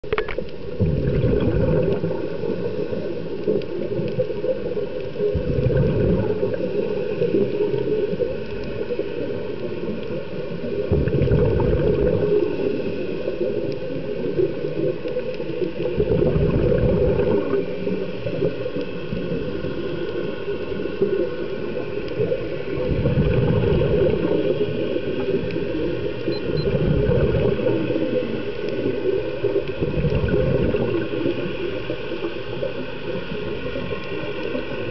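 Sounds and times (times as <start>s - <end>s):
exhaled bubbles underwater: 0.0s - 34.9s
steady underwater hiss: 0.0s - 34.9s.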